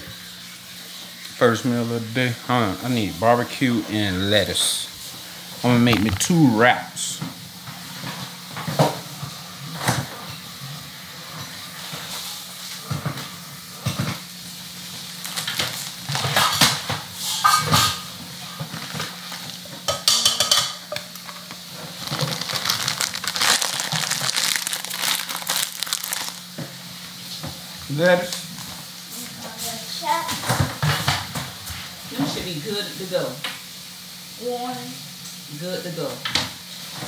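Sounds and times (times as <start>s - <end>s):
plastic bag rustling: 5.7s - 6.6s, 14.8s - 16.6s, 21.2s - 26.6s
dishes knocking and clinking: 19.7s - 21.5s.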